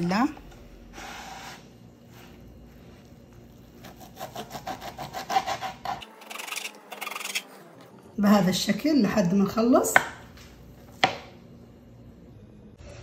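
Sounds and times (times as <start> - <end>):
knife chopping on wooden board: 9.9 - 10.2, 10.9 - 11.3.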